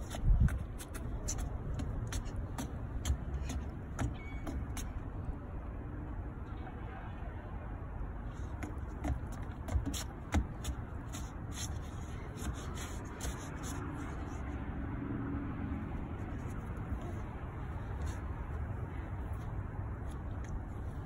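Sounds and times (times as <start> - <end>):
child's footsteps on deck: 0.0 - 5.0, 8.5 - 13.8.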